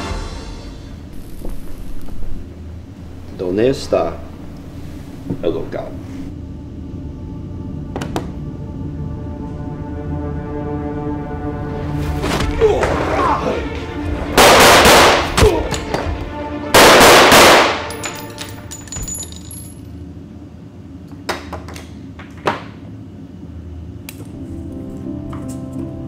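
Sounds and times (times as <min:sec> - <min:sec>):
tense background music: 0:00.0 - 0:01.4, 0:06.3 - 0:19.7, 0:24.3 - 0:26.0
gunfire bursts: 0:14.4 - 0:15.3, 0:16.8 - 0:17.9.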